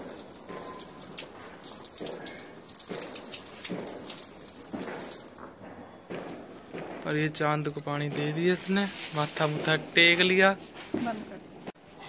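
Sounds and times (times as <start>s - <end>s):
water splashing on ground: 0.0s - 5.6s.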